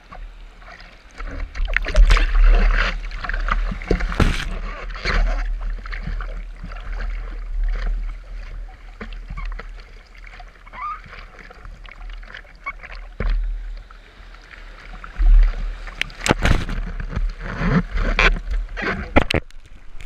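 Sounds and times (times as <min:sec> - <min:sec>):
low rumble of water and wind: 0:00.0 - 0:20.0
water splashing against surfboard: 0:00.0 - 0:20.0
paddling hand splashes: 0:01.6 - 0:05.3.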